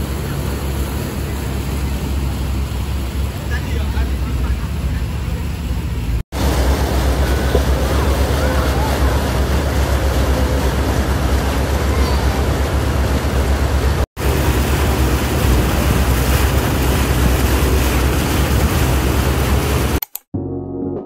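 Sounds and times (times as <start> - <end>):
boat rushing across water: 0.0 - 20.0
wind buffeting microphone: 6.4 - 20.0.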